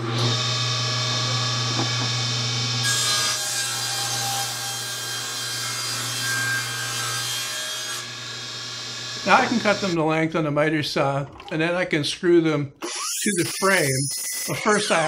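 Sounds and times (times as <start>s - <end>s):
table saw motor hum: 0.0s - 5.4s, 6.0s - 10.0s, 12.8s - 14.5s
saw blade whine cutting wood: 0.0s - 10.0s, 12.8s - 15.0s.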